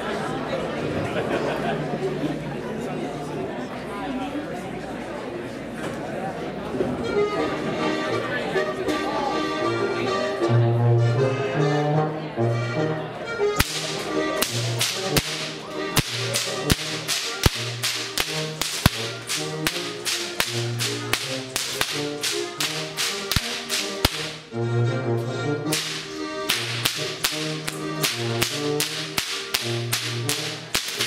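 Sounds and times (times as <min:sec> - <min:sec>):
brass oom-pah band music: 0:07.2 - 0:31.0
dancers slapping thighs and shoes: 0:13.6 - 0:24.4, 0:25.8 - 0:31.0.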